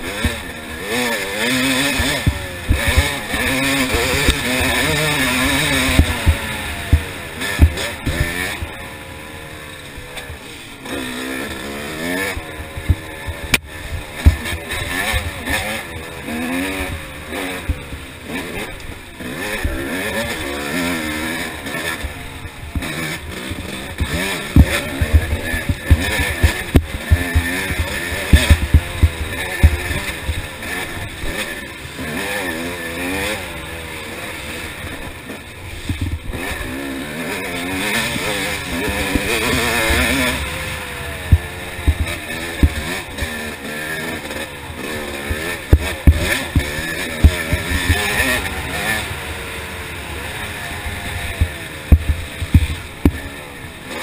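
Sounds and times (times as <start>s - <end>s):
dirt bike engine revving: 0.0s - 54.0s
low thumps from bumps: 5.4s - 8.8s, 12.8s - 15.6s, 22.7s - 30.4s, 41.3s - 43.3s, 45.3s - 48.8s, 51.1s - 53.2s.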